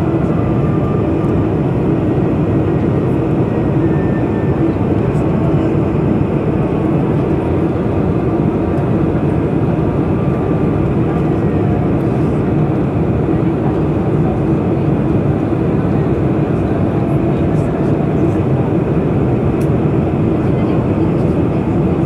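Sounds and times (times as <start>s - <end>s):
engine and airflow roar: 0.0s - 22.0s.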